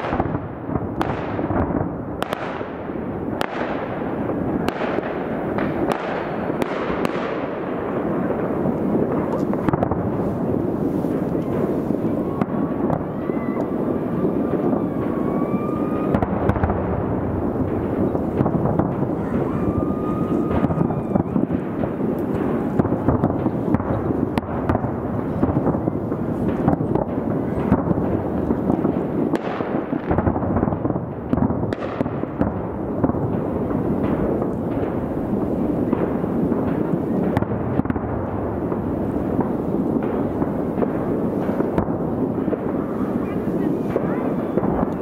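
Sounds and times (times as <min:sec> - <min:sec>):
distant fireworks rumble: 0:00.0 - 0:45.0
sharp firework bangs: 0:00.0 - 0:45.0
faint firework whistles: 0:09.2 - 0:16.8, 0:17.7 - 0:28.9.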